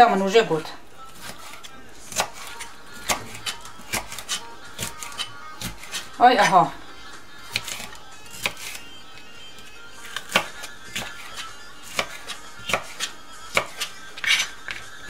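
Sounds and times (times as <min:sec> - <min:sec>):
knife chopping on plastic board: 0:01.1 - 0:06.5, 0:07.5 - 0:08.8, 0:10.0 - 0:15.0.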